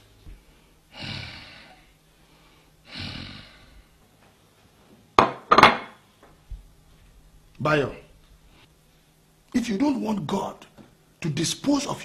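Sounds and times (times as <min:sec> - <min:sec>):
person sighing heavily: 0:00.9 - 0:03.9
plate knocking on table: 0:05.2 - 0:06.0.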